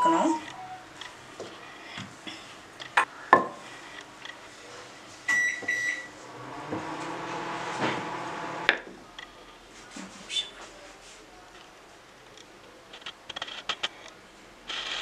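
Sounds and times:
microwave beeps: 0.0s - 0.9s, 5.3s - 6.1s
microwave humming: 5.3s - 8.7s.

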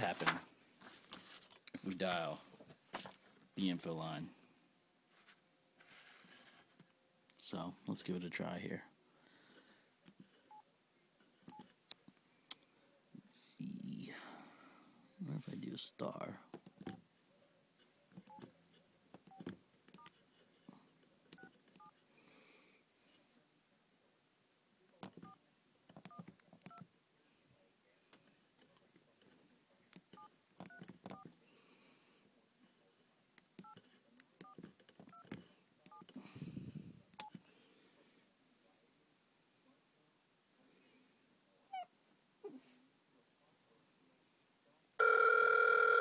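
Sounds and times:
handling rustle: 0.0s - 1.7s.

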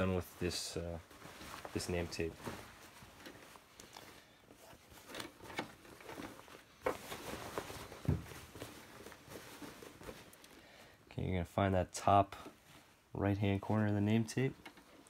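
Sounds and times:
fabric rustling: 0.0s - 11.0s
thump: 8.0s - 8.4s.

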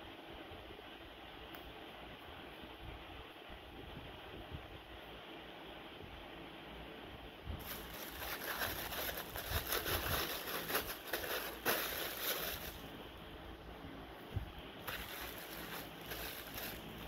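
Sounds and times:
plastic bag crinkling: 7.6s - 13.0s, 14.8s - 17.0s.

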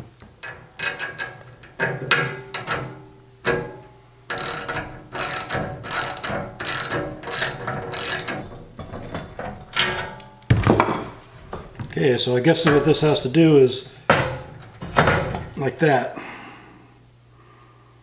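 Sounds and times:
hand socket ratchet clicking: 4.3s - 8.6s.

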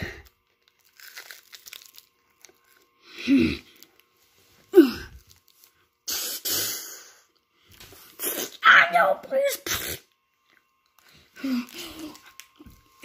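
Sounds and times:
plastic wrapper crinkling: 0.2s - 3.0s, 5.1s - 5.8s, 10.5s - 13.0s.

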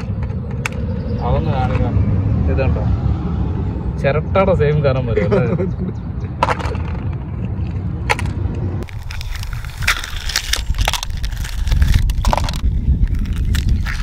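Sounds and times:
steady low rumble: 0.0s - 14.0s
eggshell cracking and crunching: 8.8s - 14.0s.

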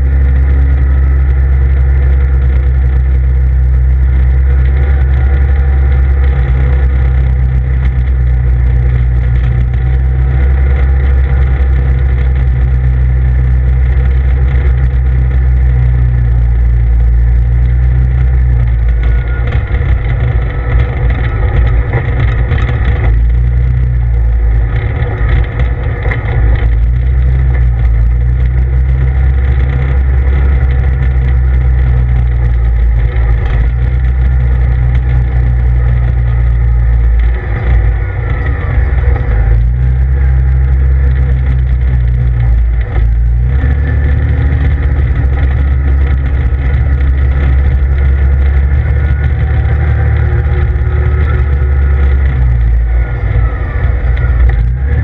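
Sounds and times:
vehicle engine running: 0.0s - 55.0s.

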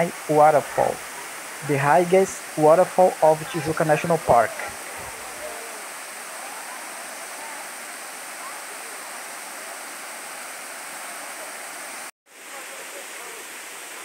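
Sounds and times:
waterfall rushing over rocks: 0.0s - 14.0s.

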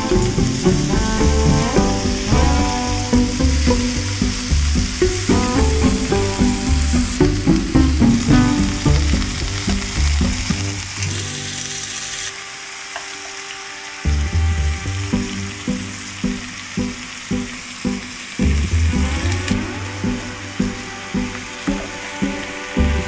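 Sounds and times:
background music with steady beat: 0.0s - 11.4s, 12.5s - 23.0s
meat sizzling in a frying pan: 0.0s - 14.0s.

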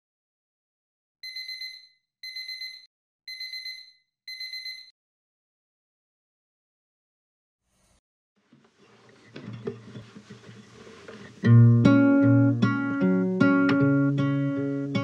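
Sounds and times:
phone alarm beeping: 1.2s - 4.9s.

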